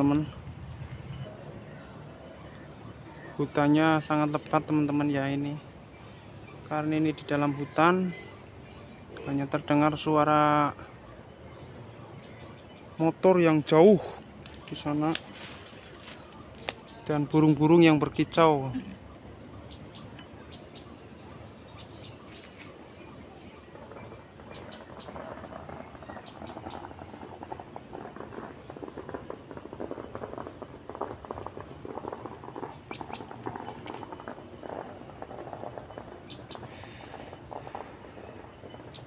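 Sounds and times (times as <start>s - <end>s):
distant motorbike hum: 0.0s - 39.0s
faint bird chirps: 0.0s - 39.0s
rustling of leaf litter: 13.0s - 18.8s.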